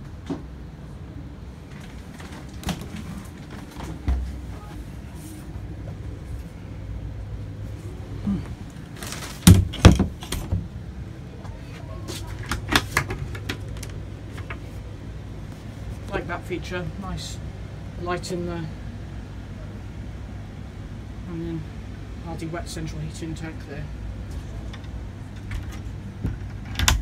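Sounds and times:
low steady hum: 0:00.0 - 0:27.0
doors and cupboards handled: 0:08.9 - 0:10.7, 0:11.4 - 0:14.7, 0:24.3 - 0:27.0.

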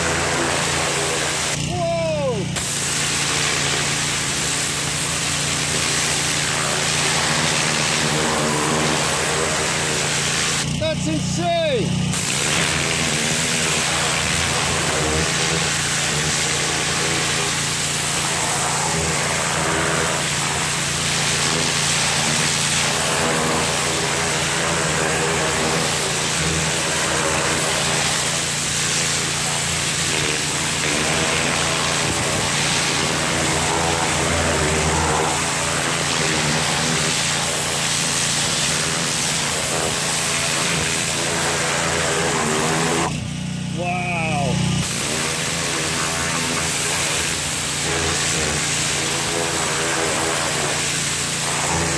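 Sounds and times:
pressure washer water jet hissing: 0:00.0 - 0:51.9
engine drone: 0:38.8 - 0:50.3.

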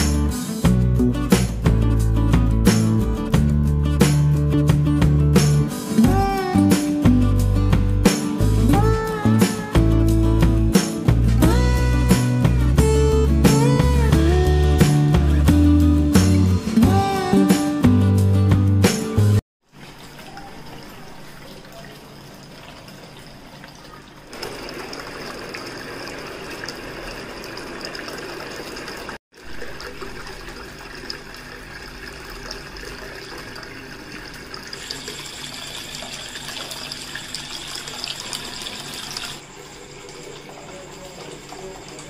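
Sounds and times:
fountain water splashing: 0:24.3 - 0:33.9.

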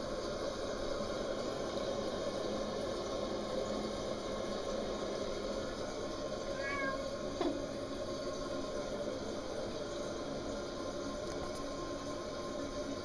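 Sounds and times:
cat meowing: 0:06.6 - 0:07.1.

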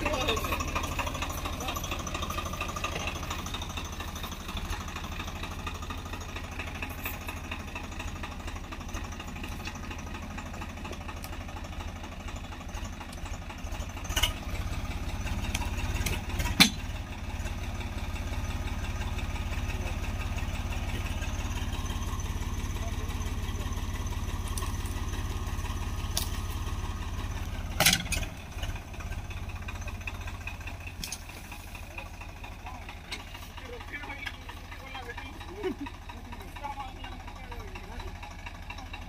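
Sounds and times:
tractor diesel engine running: 0:00.0 - 0:39.0
sharp wood cracks: 0:26.0 - 0:26.6.

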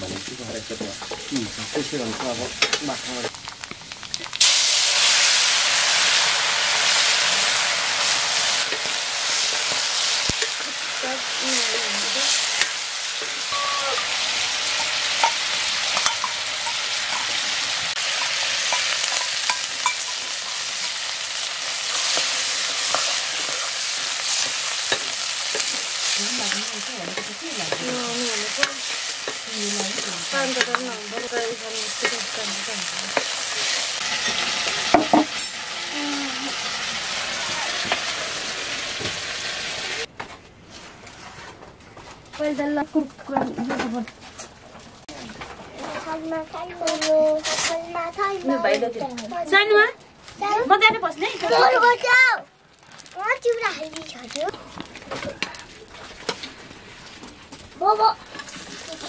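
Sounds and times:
meat sizzling in a wok: 0:00.0 - 0:40.1.

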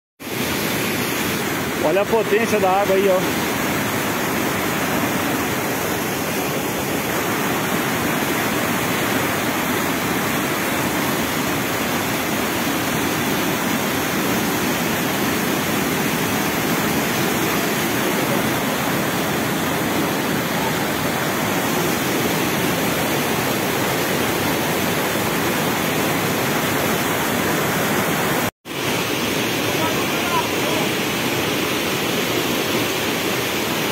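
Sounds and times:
water rushing over rocks: 0:00.2 - 0:33.9.

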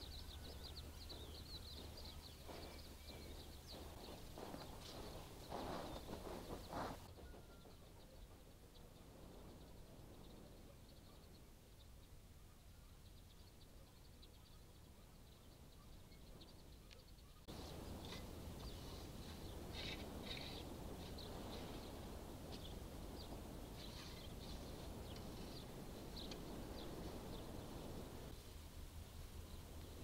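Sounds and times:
small birds chirping: 0:00.0 - 0:28.4
even rustling noise: 0:00.3 - 0:07.2.

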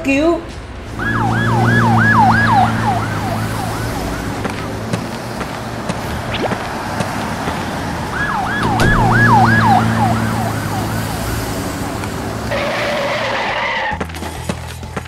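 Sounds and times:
ambulance siren wailing: 0:00.9 - 0:13.9.

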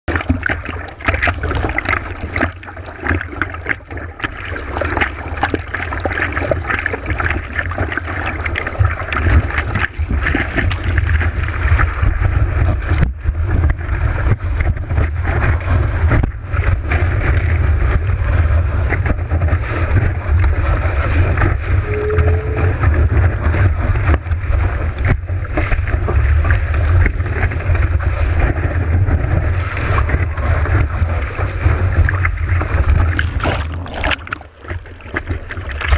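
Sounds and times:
water rushing over surfboard: 0:00.1 - 0:35.9
wind buffeting microphone: 0:08.7 - 0:35.9.

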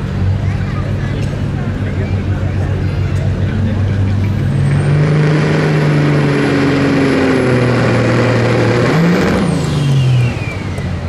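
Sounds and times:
diesel truck engine running hard: 0:00.0 - 0:11.0
turbo whistle: 0:09.7 - 0:11.0.

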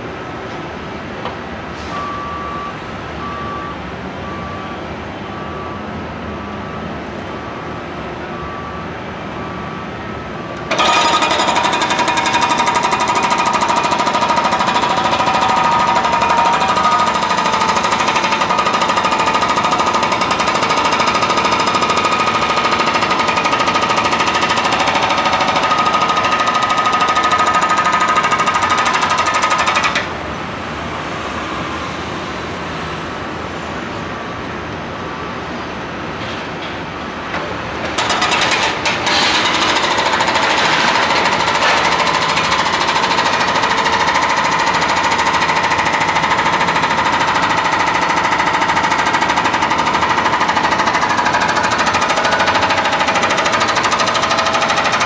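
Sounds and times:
steady machinery noise: 0:06.2 - 0:55.0
hydraulic breaker hammering pavement: 0:10.6 - 0:30.2, 0:37.3 - 0:55.0.

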